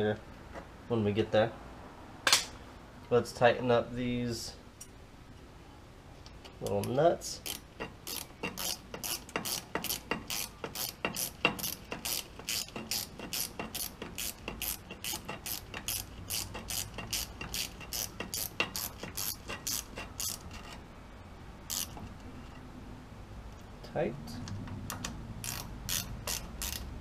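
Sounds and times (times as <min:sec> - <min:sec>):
hand ratchet clicking: 0:06.6 - 0:20.8, 0:21.7 - 0:22.3, 0:24.9 - 0:27.0.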